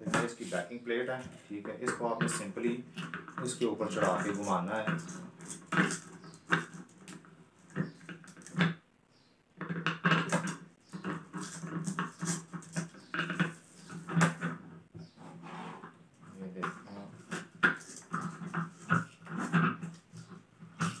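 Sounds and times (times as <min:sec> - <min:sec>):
backing plate clicks and scrapes: 0:09.6 - 0:21.0.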